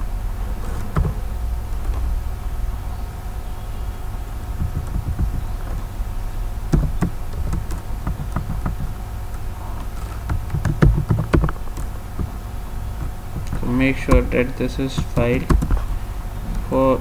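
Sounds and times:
steady low hum: 0.0 - 17.0
computer keyboard keystrokes: 4.6 - 5.8, 6.7 - 12.3, 13.0 - 15.8.

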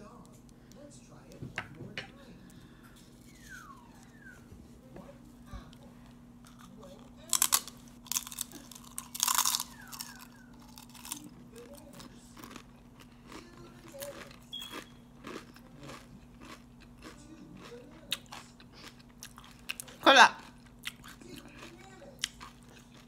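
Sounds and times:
tortilla chip crunching: 6.4 - 23.0.

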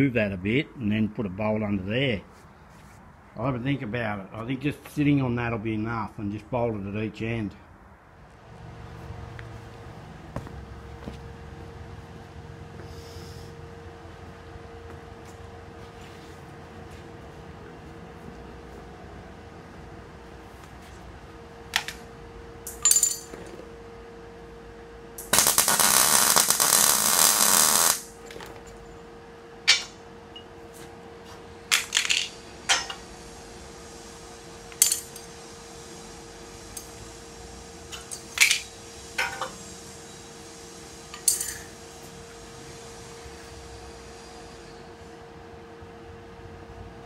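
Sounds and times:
arc welding bursts: 25.2 - 28.2.

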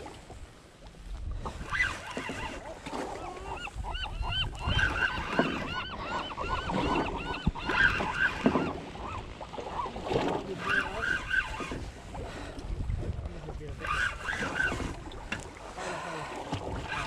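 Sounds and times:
boat rumble: 0.0 - 17.0
wind: 0.0 - 17.0
birds squawking: 3.2 - 10.0, 10.6 - 11.8.

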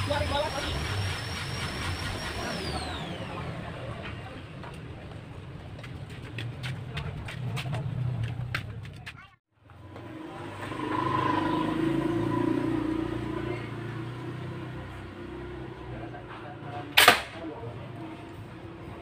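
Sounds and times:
vehicle engine: 0.0 - 19.0.

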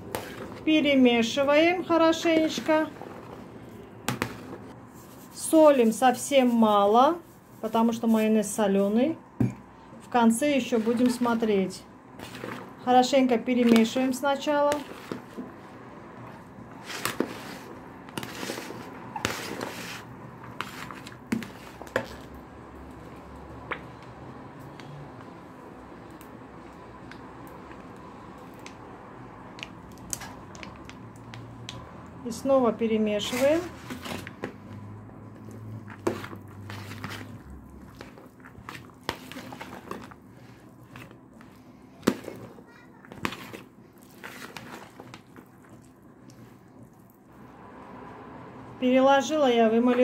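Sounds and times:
spoon stirring rice salad: 10.5 - 32.0, 33.2 - 47.6
salad squishing by hand: 35.3 - 47.6.

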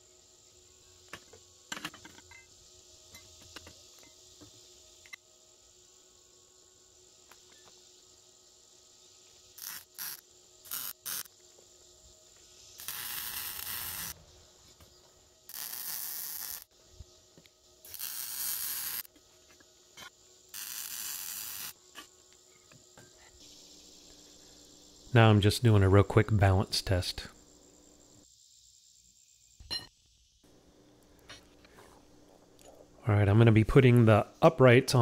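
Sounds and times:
welder arc hissing: 8.5 - 22.5, 23.2 - 28.3.

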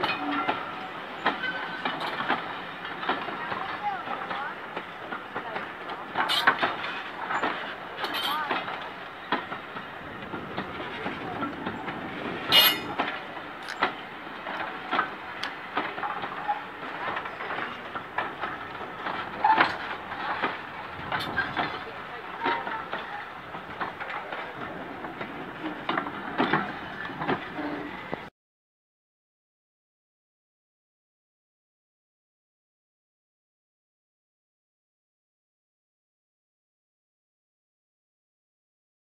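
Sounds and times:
train wheels clicking over rail joints: 0.0 - 28.3
wheel squeaks: 6.2 - 8.6, 10.7 - 13.9, 25.6 - 28.3.

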